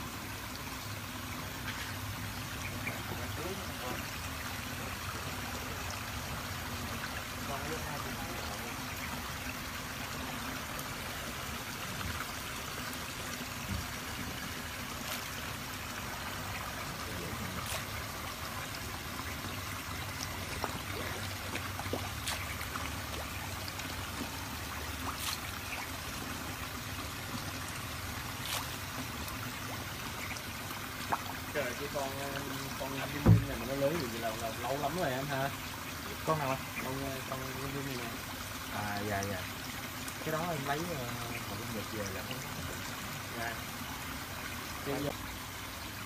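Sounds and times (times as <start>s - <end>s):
running water: 0.0s - 46.0s
sharp clicks or small splashes: 17.6s - 18.0s.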